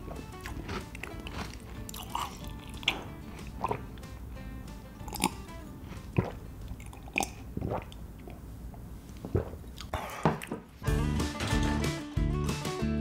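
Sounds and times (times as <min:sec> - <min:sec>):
person gulping drink: 0:00.0 - 0:04.0, 0:05.0 - 0:08.5, 0:09.1 - 0:10.6.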